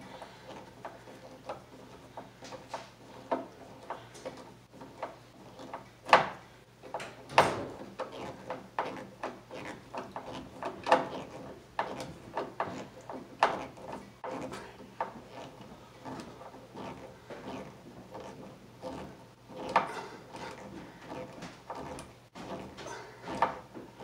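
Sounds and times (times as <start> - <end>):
screw creaking into wood: 2.4 - 23.8.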